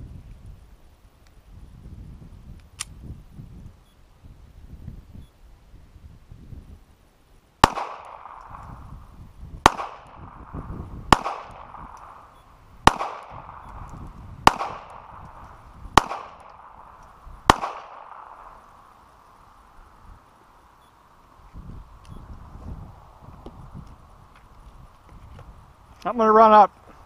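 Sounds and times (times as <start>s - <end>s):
gunshots with ringing echo: 7.6s - 9.0s, 9.6s - 13.8s, 14.4s - 18.9s.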